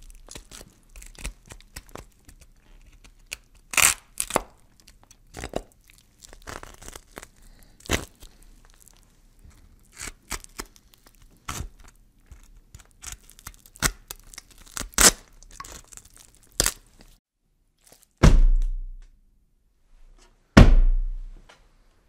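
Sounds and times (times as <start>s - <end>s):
crunching and tearing cracks: 0.0s - 17.2s, 17.8s - 18.2s
heavy thuds with low rumble: 18.2s - 19.0s, 20.6s - 21.4s.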